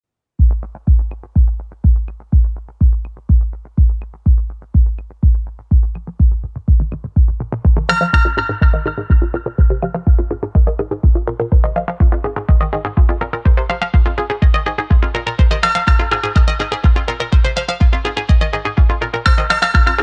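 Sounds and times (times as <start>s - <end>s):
deep kick-drum beat: 0.4s - 20.0s
electronic music: 0.4s - 20.0s
bright synth chord: 7.9s - 10.5s.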